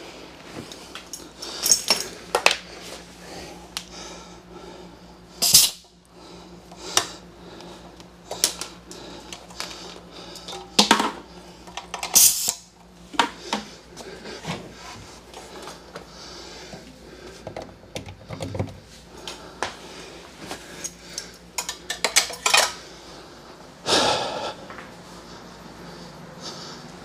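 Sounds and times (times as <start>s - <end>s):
objects clinking and knocking: 1.0s - 2.6s.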